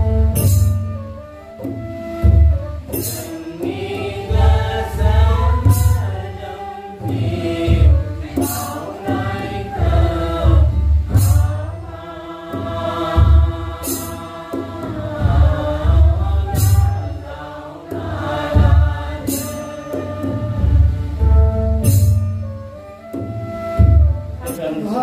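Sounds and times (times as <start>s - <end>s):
crash percussion strokes: 0.0s - 25.0s
group singing prayer chant: 3.2s - 20.7s.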